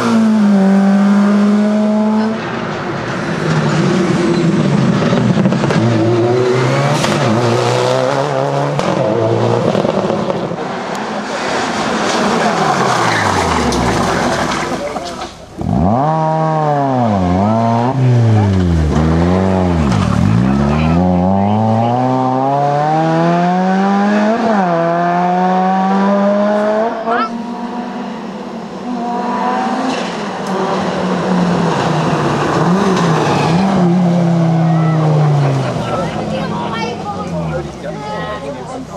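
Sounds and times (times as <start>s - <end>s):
rally car engine at speed: 0.0s - 38.9s
rally car engine revving: 0.0s - 38.9s.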